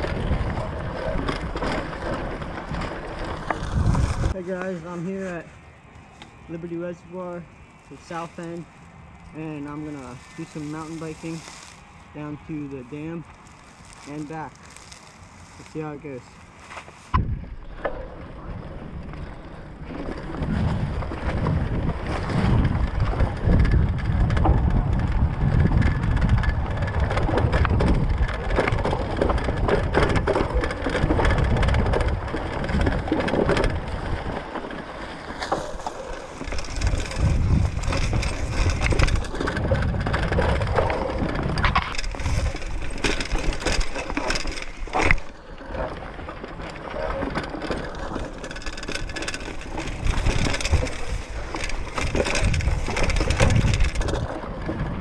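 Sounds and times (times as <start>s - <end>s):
bike tyres crunching dry leaves: 0.0s - 55.0s
low rumble on microphone: 17.1s - 34.6s, 35.7s - 43.5s.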